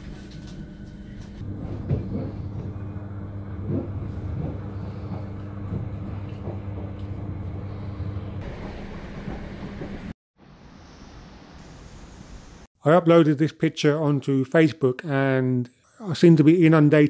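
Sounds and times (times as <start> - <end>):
train rolling rumble and hum: 0.0 - 10.2.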